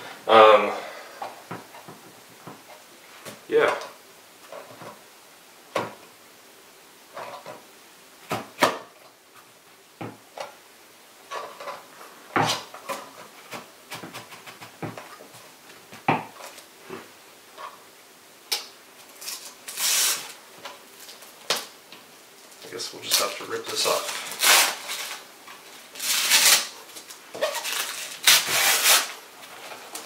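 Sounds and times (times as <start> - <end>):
paper rustling: 22.6 - 30.0.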